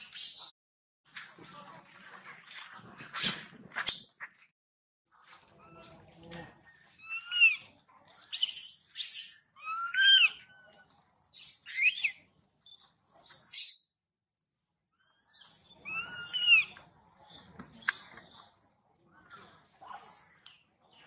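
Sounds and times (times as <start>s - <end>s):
baby monkey squealing: 7.0s - 7.6s, 8.3s - 10.7s, 11.4s - 12.2s, 13.2s - 13.8s, 15.2s - 16.8s.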